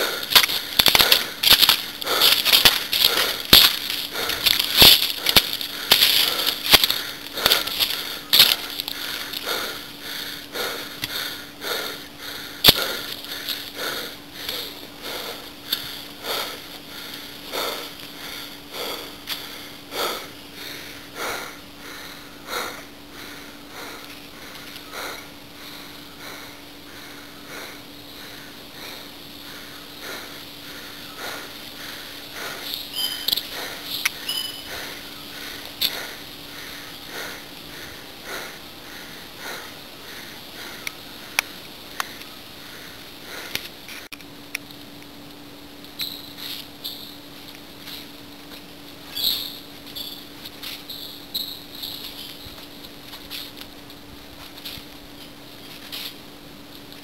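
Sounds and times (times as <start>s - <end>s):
rhythmic breathing through nose: 0.0s - 44.1s, 46.3s - 53.8s
faint steady hum: 0.0s - 57.0s
short high chirps: 34.2s - 34.7s.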